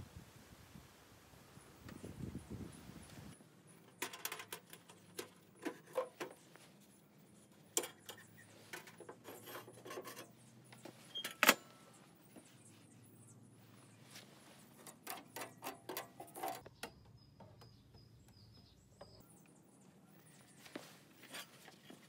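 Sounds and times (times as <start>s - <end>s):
metal plates scraping and clinking: 7.7s - 10.4s.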